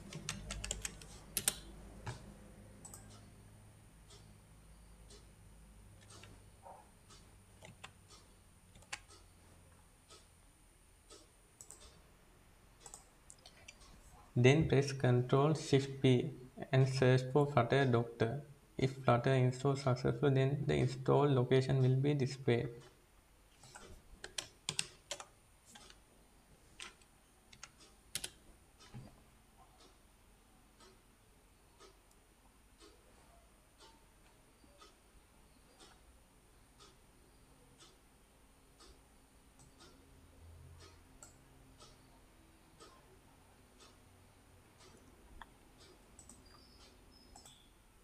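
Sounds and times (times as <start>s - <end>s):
computer keyboard typing: 0.0s - 2.2s, 8.7s - 9.2s, 11.6s - 12.0s, 23.6s - 26.0s, 26.8s - 28.4s
computer mouse clicks: 0.0s - 3.3s, 7.1s - 9.3s, 11.1s - 12.0s, 12.8s - 13.9s, 23.6s - 26.0s, 26.8s - 29.1s, 39.6s - 40.0s, 40.8s - 42.0s, 44.8s - 47.7s.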